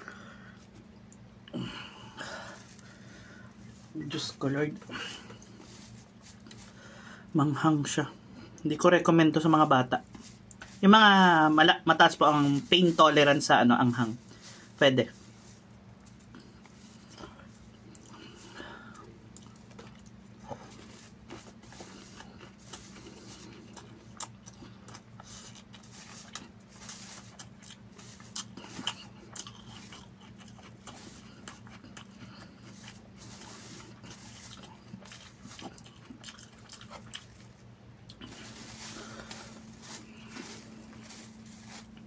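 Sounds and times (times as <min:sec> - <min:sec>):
chewing and lip smacks: 0:16.1 - 0:38.4.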